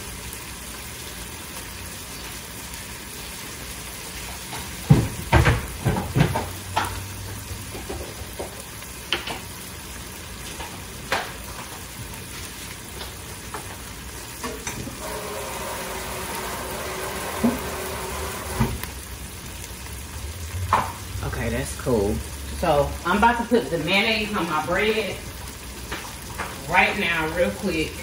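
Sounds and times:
food sizzling in a skillet: 0:00.0 - 0:28.0.

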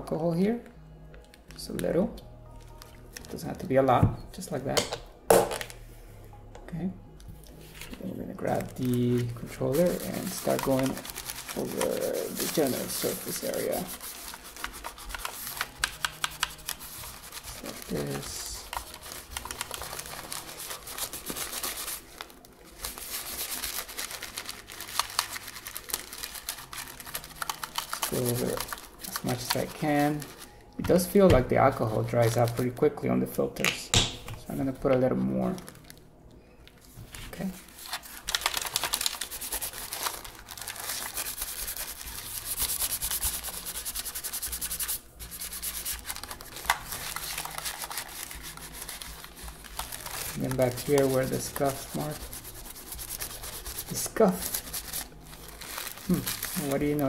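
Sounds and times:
paper filter rubbing on plastic: 0:08.6 - 0:30.5, 0:37.1 - 0:57.0.

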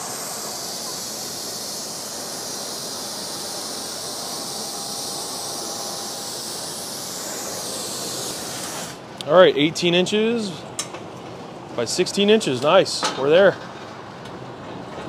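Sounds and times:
compressed air hissing through torch: 0:00.0 - 0:09.1.

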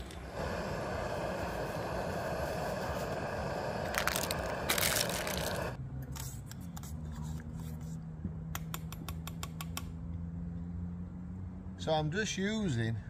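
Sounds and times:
camping stove hissing: 0:00.0 - 0:05.8.

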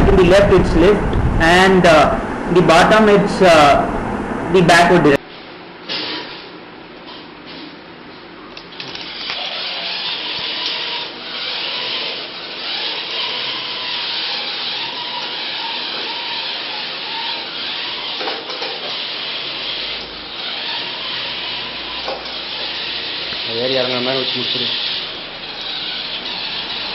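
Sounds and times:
faint thin motor whine: 0:08.8 - 0:26.9
robot motors whirring: 0:08.8 - 0:26.9.

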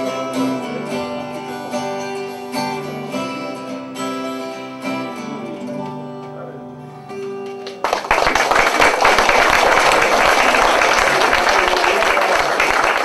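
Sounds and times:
acoustic guitar chord ringing: 0:00.0 - 0:07.8
audience applause: 0:07.6 - 0:13.0.

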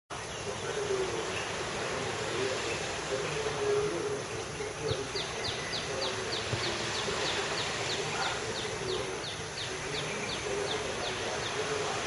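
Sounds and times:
small waves breaking on beach: 0:00.1 - 0:12.0.

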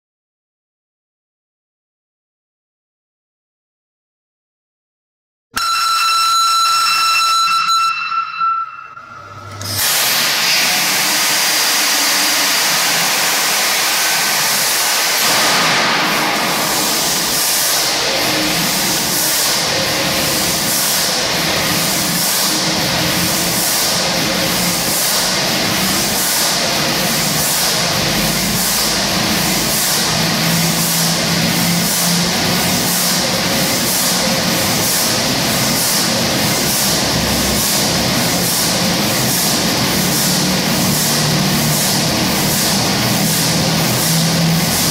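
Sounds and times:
loud hiss: 0:09.8 - 0:33.2
diesel engine beat quickening: 0:10.9 - 0:44.9.

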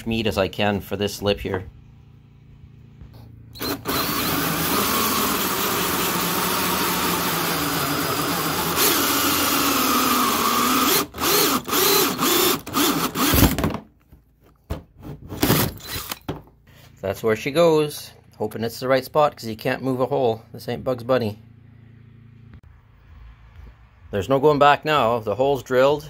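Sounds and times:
drill cutting through plastic: 0:03.6 - 0:13.7, 0:15.4 - 0:16.2.

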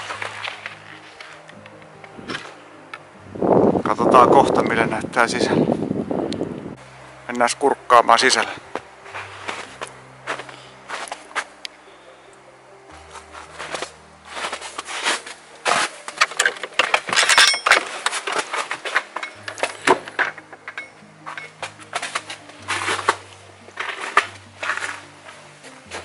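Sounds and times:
slow low background music: 0:00.0 - 0:26.0
clattering knocks and clinks: 0:16.2 - 0:23.1.

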